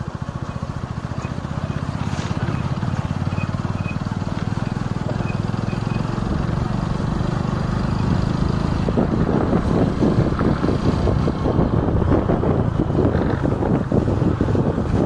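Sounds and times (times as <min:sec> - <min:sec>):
motorcycle engine running: 0:00.0 - 0:15.0
wind on microphone: 0:06.2 - 0:15.0.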